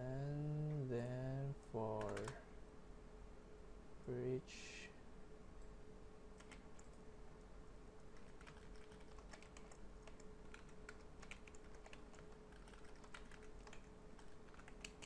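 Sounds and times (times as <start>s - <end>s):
thin steady hum: 0.0s - 15.0s
keyboard typing clicks: 1.9s - 2.4s, 6.4s - 7.0s, 8.2s - 15.0s.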